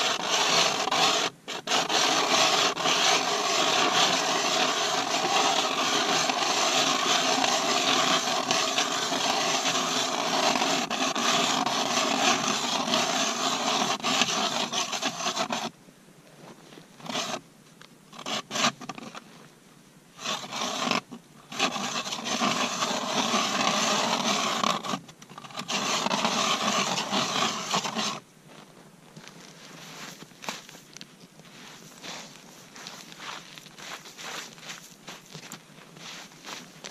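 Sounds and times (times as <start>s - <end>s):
ice auger scraping through ice: 0.0s - 15.7s, 17.0s - 17.4s, 18.1s - 19.2s, 20.2s - 28.2s, 31.5s - 36.9s.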